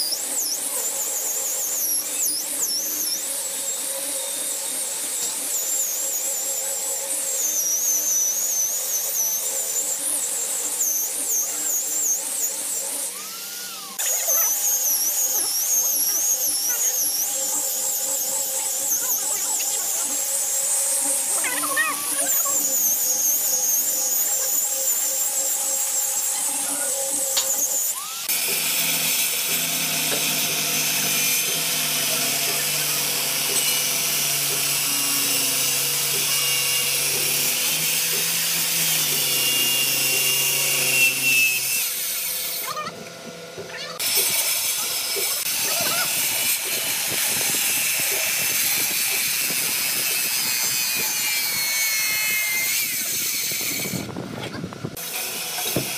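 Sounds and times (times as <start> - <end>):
angle grinder sanding wood: 0.0 - 55.9
circular saw cutting hardwood: 0.0 - 55.9.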